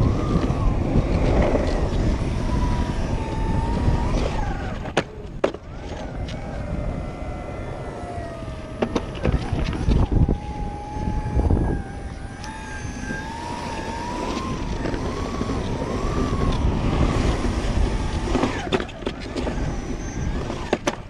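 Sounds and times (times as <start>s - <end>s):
electric motor whine: 0.0s - 21.0s
wheels rumbling on concrete: 0.0s - 21.0s.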